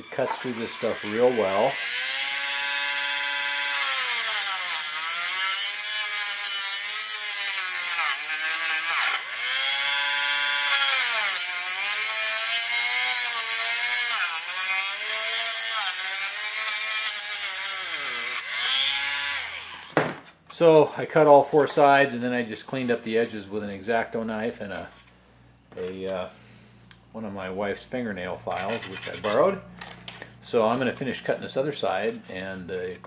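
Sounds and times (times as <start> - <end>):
rotary tool cutting plastic: 0.2 - 20.0, 28.5 - 31.2.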